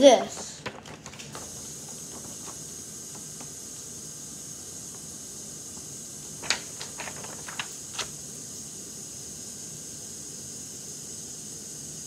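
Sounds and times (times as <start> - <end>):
paper crinkling and tapping: 0.0 - 3.6, 5.8 - 8.2
steady high hiss: 0.0 - 12.0.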